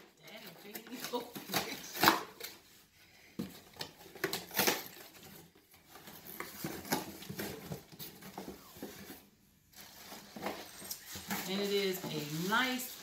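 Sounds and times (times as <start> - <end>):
cardboard box rustling and scraping: 5.0 - 13.0.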